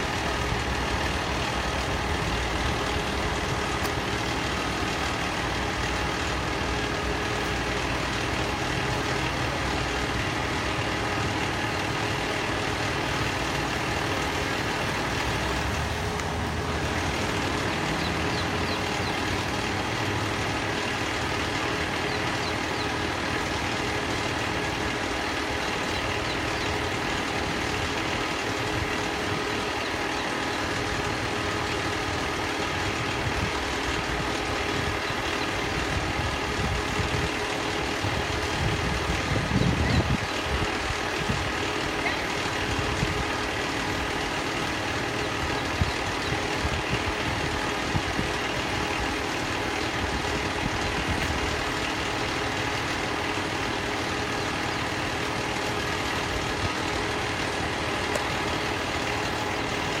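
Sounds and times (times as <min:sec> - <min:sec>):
vehicle moving close by: 0:00.0 - 0:23.0
diesel engine idling: 0:00.0 - 1:00.0.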